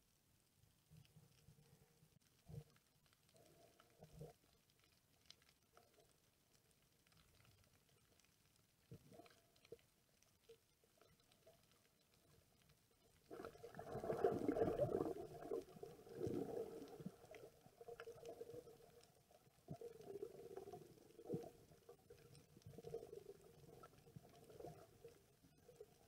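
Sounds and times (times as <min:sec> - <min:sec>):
underwater gurgling and rumbling: 0:07.0 - 0:26.0.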